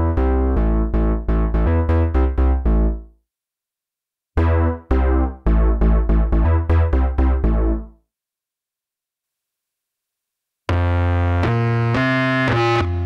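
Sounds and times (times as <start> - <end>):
deep synth bass notes: 0.0 - 3.0, 4.4 - 7.9.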